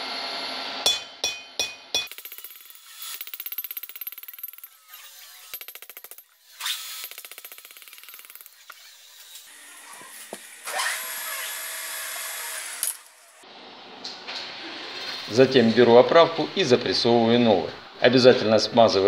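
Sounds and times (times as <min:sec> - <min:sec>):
power hammer rapid strokes: 0:01.3 - 0:11.2.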